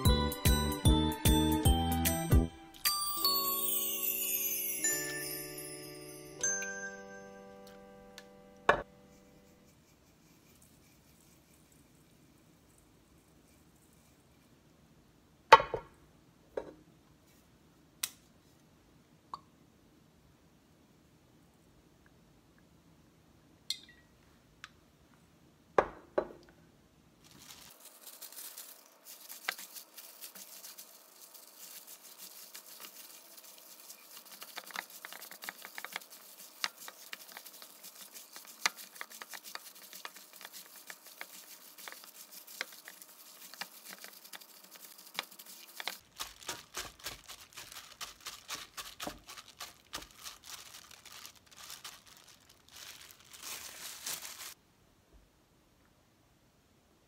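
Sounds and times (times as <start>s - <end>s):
wet squishing of kneaded meat: 27.3s - 54.6s.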